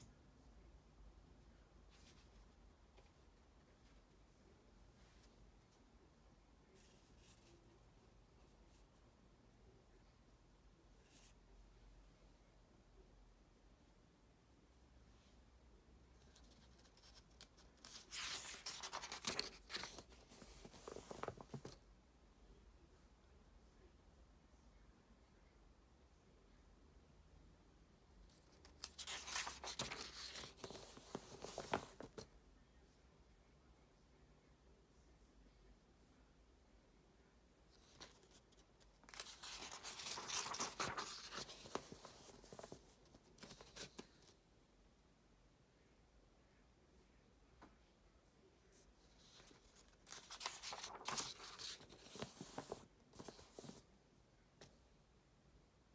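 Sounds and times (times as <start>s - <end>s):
paper pages being turned: 16.2s - 21.8s, 28.3s - 32.3s, 37.7s - 44.4s, 49.1s - 53.8s.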